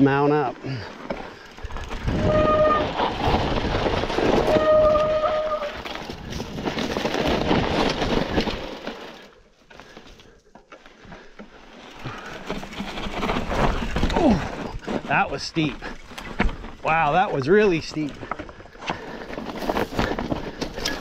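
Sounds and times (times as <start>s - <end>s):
bike tyres rumbling on trail: 0.0s - 21.0s
bike brakes squealing: 2.1s - 3.0s, 4.4s - 5.8s.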